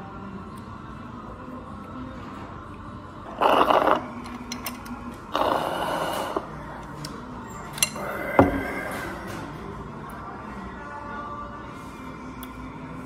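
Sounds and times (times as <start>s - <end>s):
slurping icy drink: 3.3s - 4.2s, 5.3s - 6.5s.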